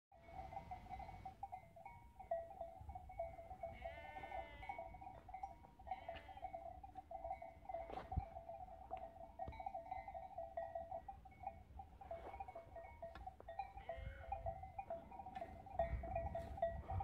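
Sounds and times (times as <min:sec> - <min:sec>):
sheep bleating: 0:03.7 - 0:04.8, 0:05.9 - 0:06.5.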